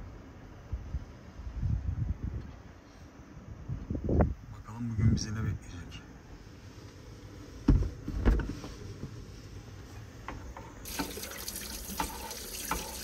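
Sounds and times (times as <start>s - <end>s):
running tap water: 10.8s - 13.0s.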